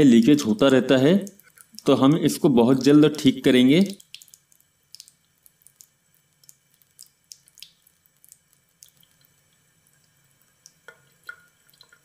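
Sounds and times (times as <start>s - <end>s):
water dripping from tap: 0.0s - 12.0s.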